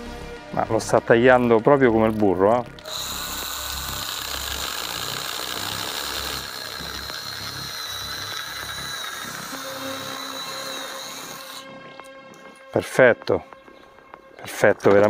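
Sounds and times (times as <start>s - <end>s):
mini chainsaw cutting wood: 2.0s - 12.5s.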